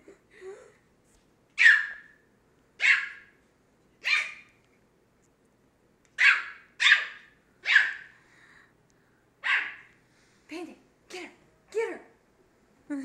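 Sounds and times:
puppy barking in high yaps: 1.6 - 2.2, 2.8 - 3.4, 4.0 - 4.6, 6.2 - 8.1, 9.4 - 9.9.

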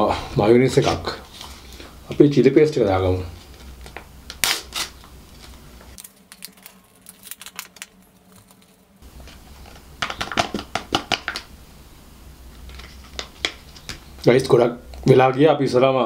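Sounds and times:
paper sachet crinkling: 4.6 - 9.6.

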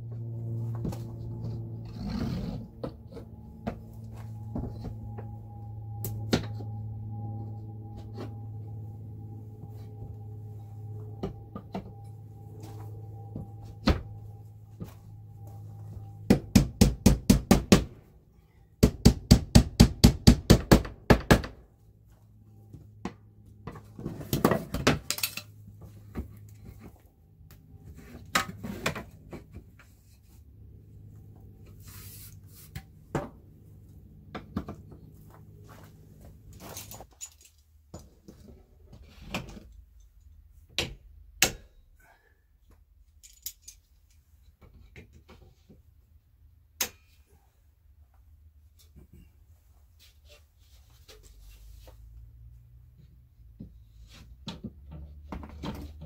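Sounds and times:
hammer driving a nail: 16.3 - 18.0, 18.8 - 21.6.

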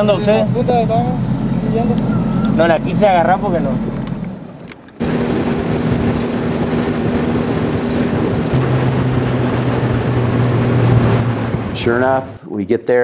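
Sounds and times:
deeper engine note: 0.0 - 4.1, 7.5 - 12.5
outboard motor hum: 0.0 - 12.4
water noise: 0.0 - 12.5
wind: 0.0 - 13.0.

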